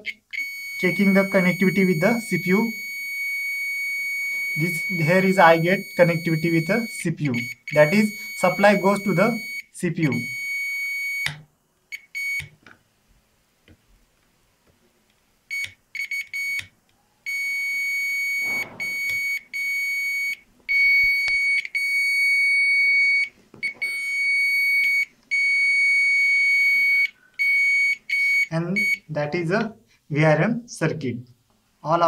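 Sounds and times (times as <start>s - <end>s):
multimeter continuity beeps: 0.0s - 12.6s, 15.5s - 16.7s, 17.3s - 29.1s.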